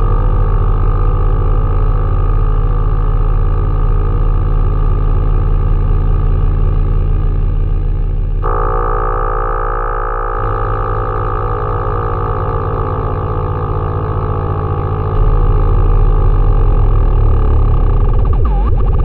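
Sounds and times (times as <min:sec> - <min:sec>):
low synthesizer drone: 0:00.0 - 0:19.0
higher synth tones bending: 0:08.4 - 0:19.0.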